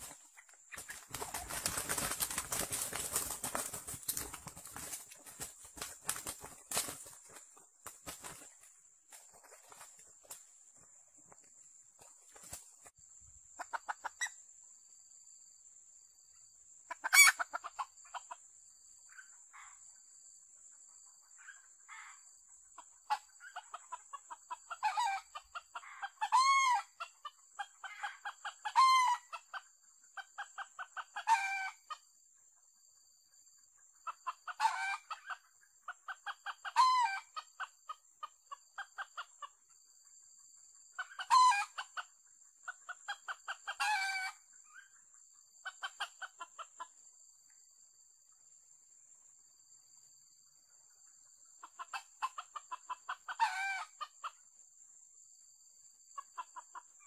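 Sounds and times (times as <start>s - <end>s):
rapid clucking: 0.0s - 10.5s.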